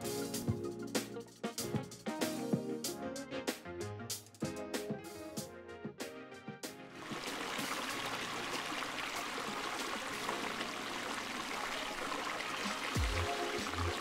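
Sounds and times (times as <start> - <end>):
fountain water splashing: 7.0 - 14.0.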